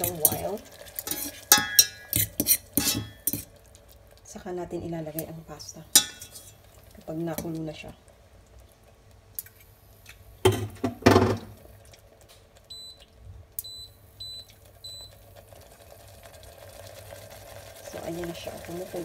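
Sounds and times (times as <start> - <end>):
sauce bubbling in a pot: 0.0 - 19.0
kitchen appliance beeping: 13.6 - 15.2.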